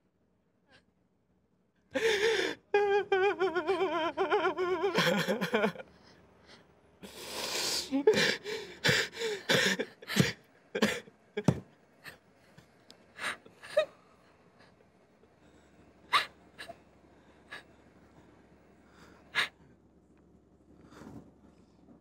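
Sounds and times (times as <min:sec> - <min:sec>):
person crying: 0:02.0 - 0:05.8, 0:07.4 - 0:11.6.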